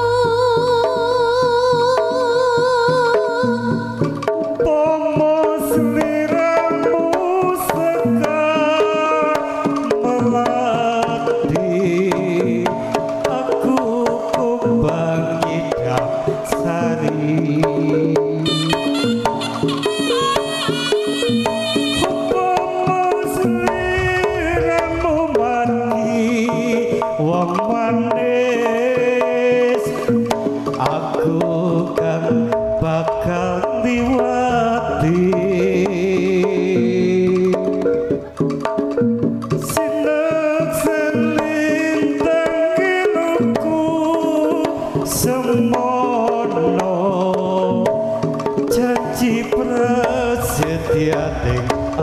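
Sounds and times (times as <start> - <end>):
hand drums beating: 0.0 - 52.0
tuned percussion melody: 0.0 - 52.0
bending melody line: 18.4 - 27.4, 30.8 - 37.5, 48.7 - 52.0
metallophone tones: 18.5 - 22.6
sharp bright percussion hits: 23.2 - 27.3, 32.0 - 36.2.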